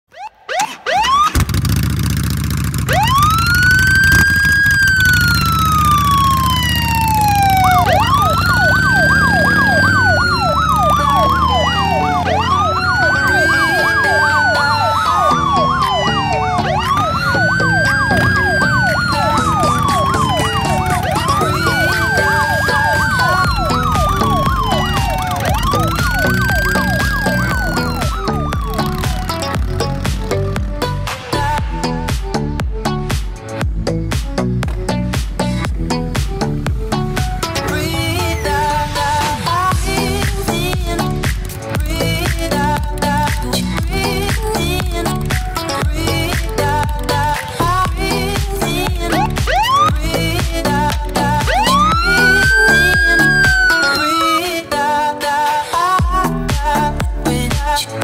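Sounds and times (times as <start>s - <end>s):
yelping police siren: 0.1s - 1.4s, 2.9s - 29.9s, 49.0s - 50.2s, 50.8s - 54.9s
wailing police siren: 0.1s - 1.5s, 2.9s - 30.5s, 48.2s - 55.0s
low engine rumble: 1.4s - 32.0s.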